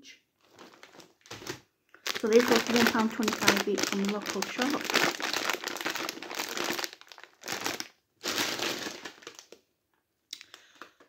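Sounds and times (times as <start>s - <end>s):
plastic crisp packets crinkling: 0.4s - 9.6s.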